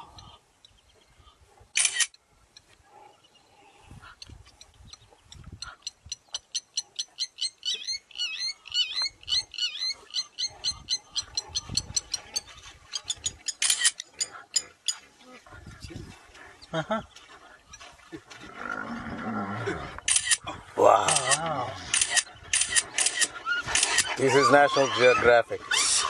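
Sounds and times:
rapid chirping animal calls: 0:04.0 - 0:15.0, 0:21.2 - 0:26.0.

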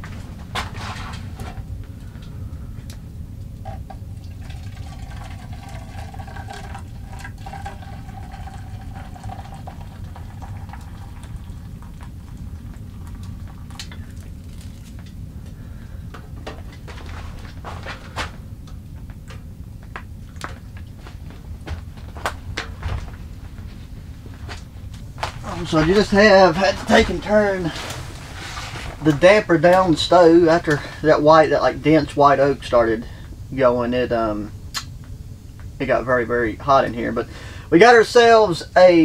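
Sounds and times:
steady low rumble: 0:00.0 - 0:38.9
coffee pouring into cup: 0:03.7 - 0:15.1.

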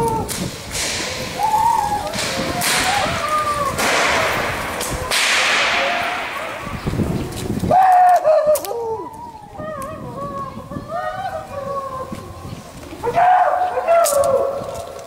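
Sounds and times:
rope whips cracking with echo: 0:00.1 - 0:06.8.

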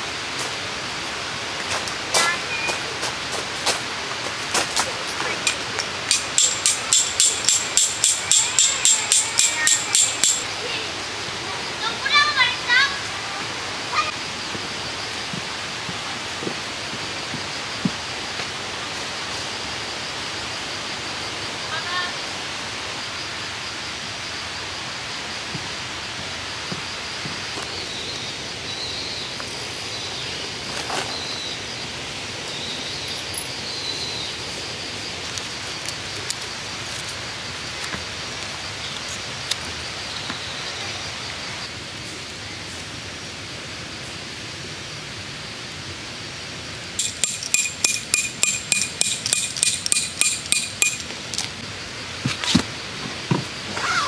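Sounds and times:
outdoor hiss: 0:00.0 - 0:54.0
loud high pulsing tones: 0:06.3 - 0:10.5.

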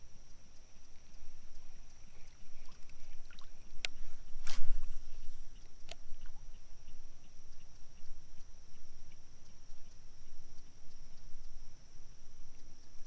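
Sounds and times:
paddle swishing through water: 0:02.0 - 0:06.4.

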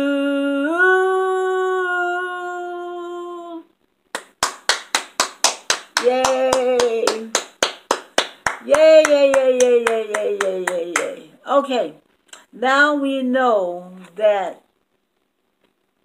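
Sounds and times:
woman singing: 0:00.0 - 0:03.7
hands clapping: 0:04.1 - 0:11.3.

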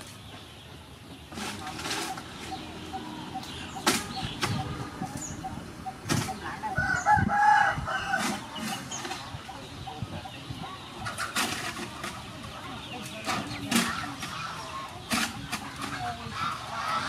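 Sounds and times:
chickens clucking: 0:00.0 - 0:17.0
shovels scraping soil into wheelbarrow: 0:01.3 - 0:02.6, 0:08.2 - 0:09.2, 0:11.1 - 0:12.3.

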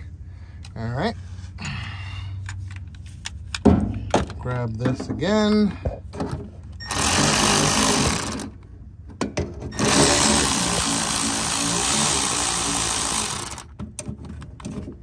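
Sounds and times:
electric ratchet running: 0:06.8 - 0:08.5, 0:09.8 - 0:13.7
tool clicks: 0:09.8 - 0:13.7.

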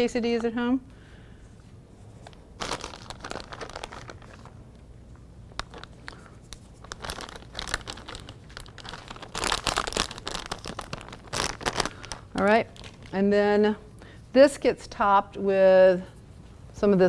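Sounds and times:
plastic bag crinkling: 0:02.2 - 0:04.8, 0:05.5 - 0:13.3.

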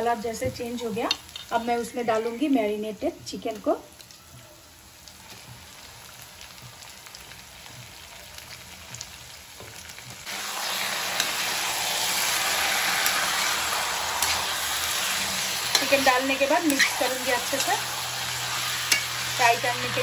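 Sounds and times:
chicken sizzling in oil: 0:00.0 - 0:20.0.

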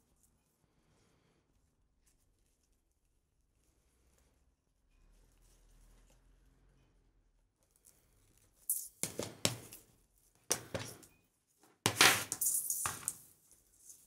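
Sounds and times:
ribbon rustling and swishing: 0:11.9 - 0:14.0.

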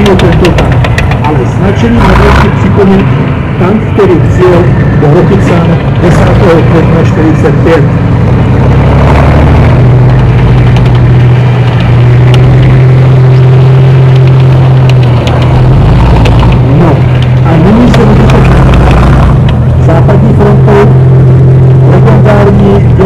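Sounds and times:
tank diesel engine running: 0:00.0 - 0:23.0.

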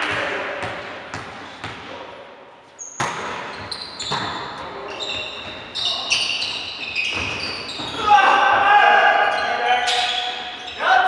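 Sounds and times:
sneakers squeaking on court: 0:02.8 - 0:08.1, 0:09.3 - 0:10.8.

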